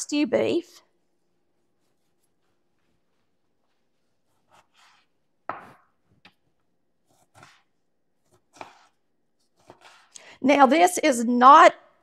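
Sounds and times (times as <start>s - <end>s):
knife cutting on cutting board: 4.2s - 5.9s, 7.0s - 10.1s.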